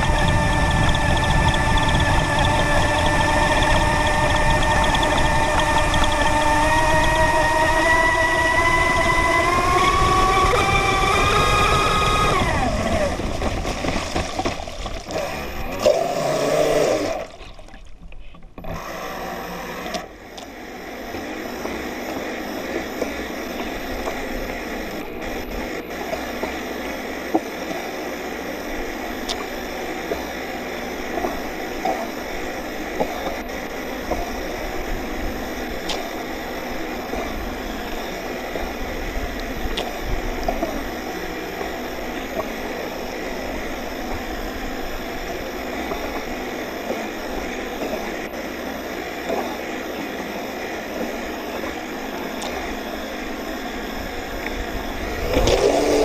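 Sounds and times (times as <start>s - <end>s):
water rushing against hull: 0.0s - 19.1s, 21.4s - 56.0s
model boat motor running: 0.0s - 56.0s
small knocks against waves: 13.3s - 15.2s.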